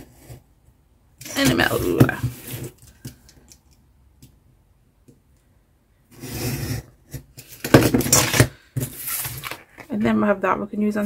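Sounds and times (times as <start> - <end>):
craft knife scraping along metal ruler: 6.1 - 7.2.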